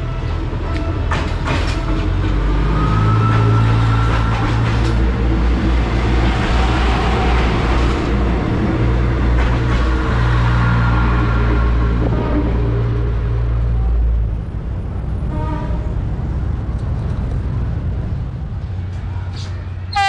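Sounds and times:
diesel train engine drone: 0:00.0 - 0:20.0.

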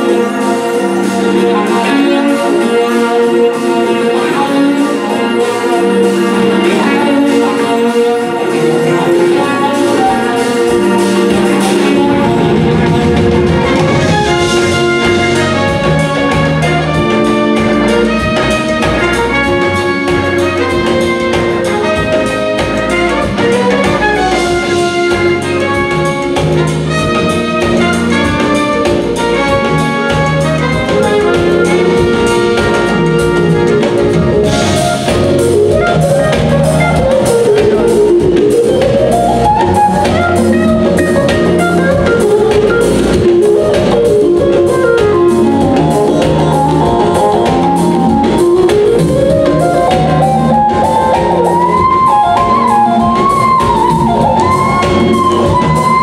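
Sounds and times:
jazz fusion band playing: 0:00.0 - 0:56.0
keyboard lead gliding in pitch: 0:00.0 - 0:56.0.

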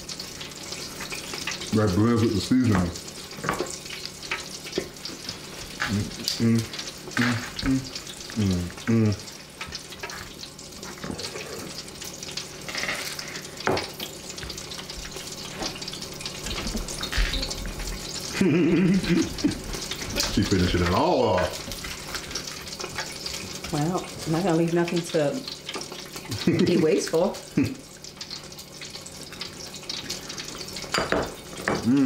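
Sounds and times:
chicken sizzling in hot oil: 0:00.0 - 0:32.0.

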